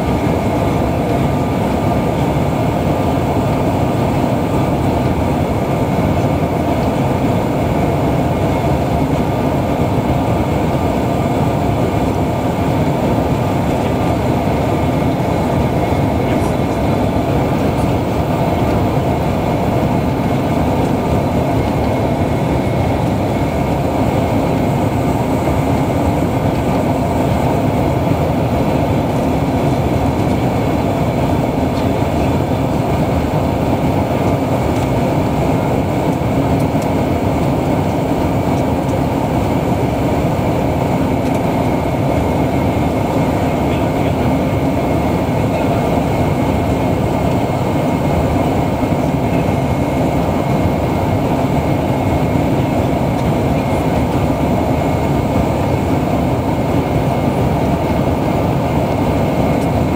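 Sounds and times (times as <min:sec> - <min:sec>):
jet engines humming: 0:00.0 - 0:59.9.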